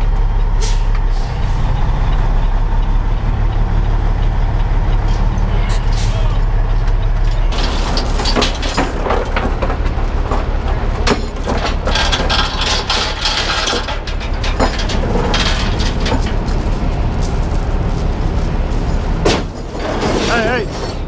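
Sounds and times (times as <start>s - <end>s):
truck diesel engine idling: 0.0s - 21.0s
metallic clinks and rattles: 7.5s - 21.0s.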